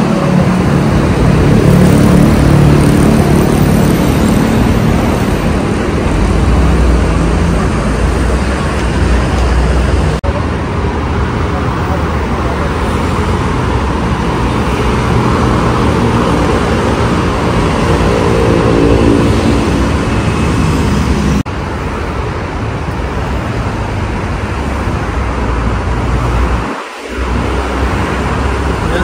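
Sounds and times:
vehicle engine passing: 0.0s - 21.5s
city road traffic: 0.0s - 29.0s.

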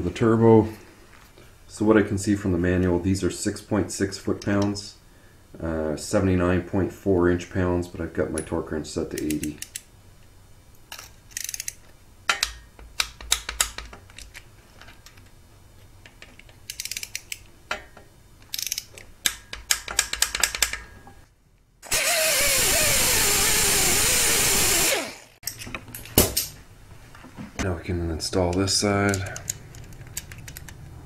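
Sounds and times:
ratchet wrench clicking: 11.3s - 13.8s, 16.7s - 17.4s, 18.5s - 20.8s.

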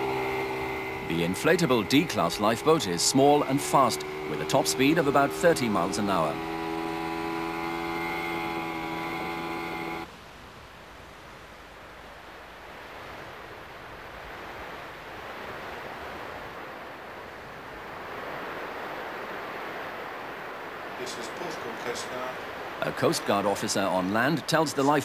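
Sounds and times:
outboard motor running: 0.0s - 10.1s
wind and sea hiss: 0.0s - 25.0s.

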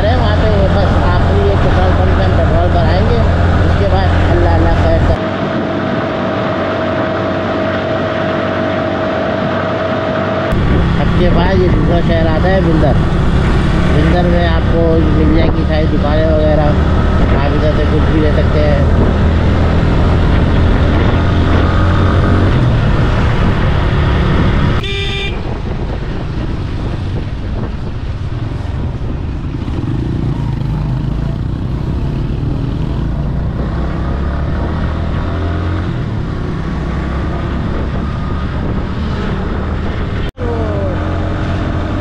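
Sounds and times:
surrounding traffic: 0.0s - 42.0s
wind noise: 0.0s - 42.0s
motorcycle engine running: 10.5s - 42.0s
vehicle horn toot: 24.8s - 25.5s.

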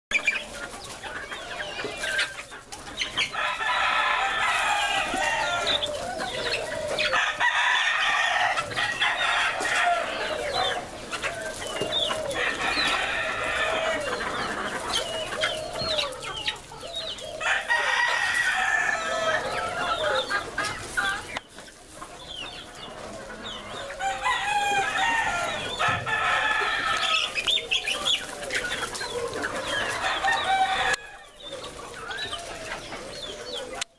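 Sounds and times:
chickens clucking: 0.1s - 33.9s
rooster crowing: 3.3s - 10.8s, 12.0s - 14.5s, 17.3s - 20.3s, 23.9s - 27.9s, 29.2s - 31.4s.

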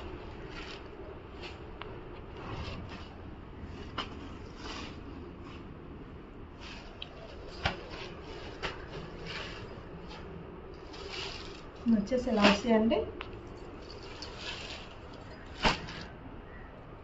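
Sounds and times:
fabric rustling: 0.0s - 16.2s.

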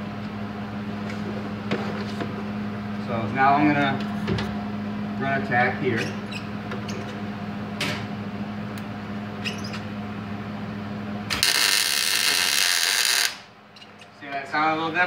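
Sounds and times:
steady hum: 0.0s - 15.0s
welding arc hissing: 11.3s - 13.5s.

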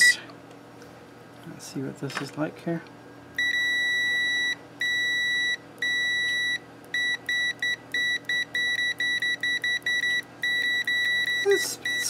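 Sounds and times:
multimeter continuity beeps: 3.4s - 12.0s.

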